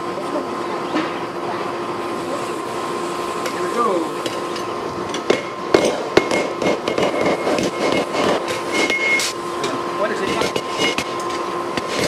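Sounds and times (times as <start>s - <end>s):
hammers striking metal on anvil: 5.2s - 8.0s.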